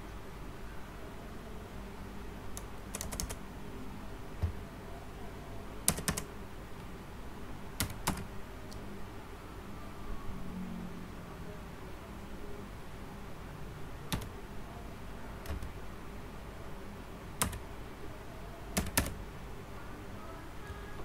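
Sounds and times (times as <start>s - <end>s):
computer keyboard typing: 2.6s - 3.4s, 5.8s - 6.3s, 7.8s - 8.3s, 14.1s - 14.4s, 15.4s - 15.8s, 17.4s - 17.6s, 18.7s - 19.2s.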